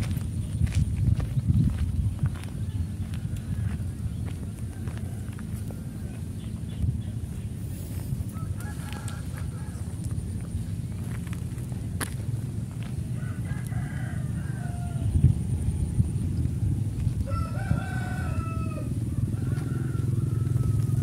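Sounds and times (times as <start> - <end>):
low rumble: 0.0 - 21.0
rooster crowing: 8.3 - 10.0, 13.1 - 15.2, 17.2 - 21.0.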